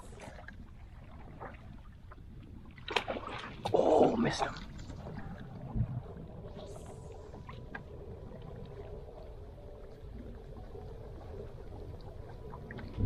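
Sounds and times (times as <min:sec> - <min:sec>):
small waves lapping: 0:00.0 - 0:05.8.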